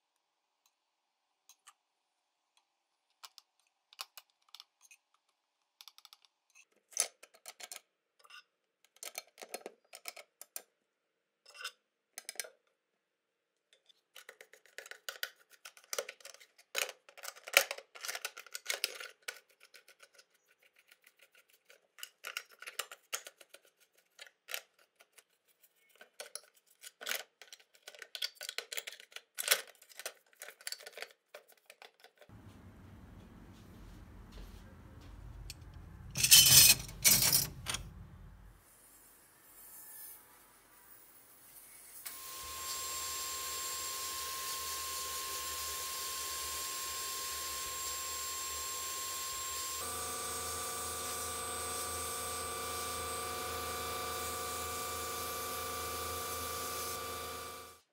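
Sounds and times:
brush scratching metal parts: 0:34.4 - 0:37.9.

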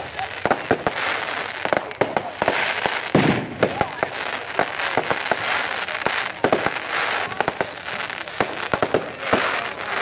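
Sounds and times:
fireworks bangs: 0:00.0 - 0:10.0
fireworks crackling hiss: 0:00.0 - 0:10.0.

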